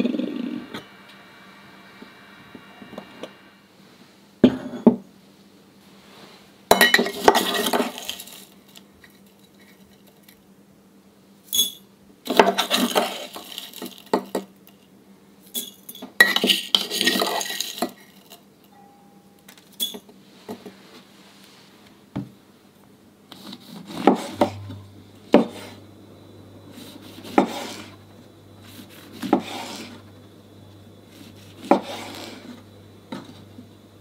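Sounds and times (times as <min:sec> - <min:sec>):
spoon clinking on metal and porcelain: 0:06.7 - 0:08.5, 0:11.5 - 0:11.9
faint metallic ring: 0:18.7 - 0:20.1, 0:24.4 - 0:25.1.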